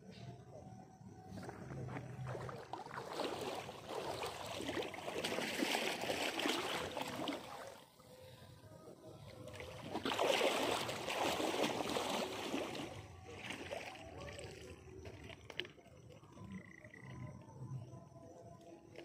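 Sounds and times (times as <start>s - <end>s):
water sloshing and splashing: 1.2s - 17.4s.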